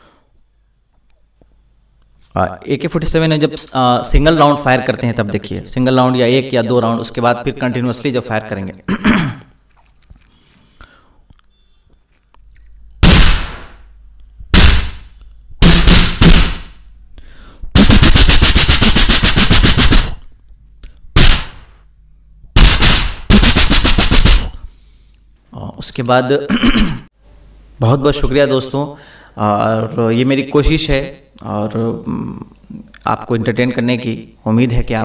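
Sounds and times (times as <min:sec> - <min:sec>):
man imitating gunfire with mouth: 0:13.0 - 0:13.8, 0:14.5 - 0:16.8, 0:17.7 - 0:20.2, 0:21.2 - 0:21.7, 0:22.6 - 0:24.6.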